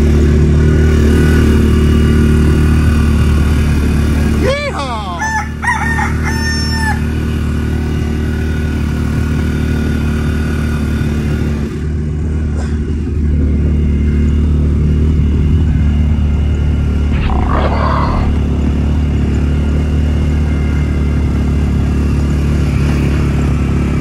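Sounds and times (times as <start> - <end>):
side-by-side engine running: 0.0 - 17.1, 18.4 - 24.0
rooster crowing: 5.2 - 7.1.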